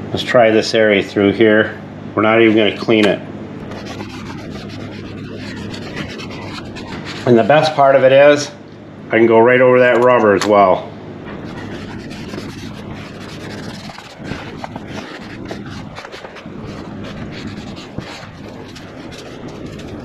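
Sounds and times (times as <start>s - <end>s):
steady low hum: 0.0s - 20.0s
towel rubbing on plastic trim: 3.7s - 7.5s, 11.4s - 20.0s.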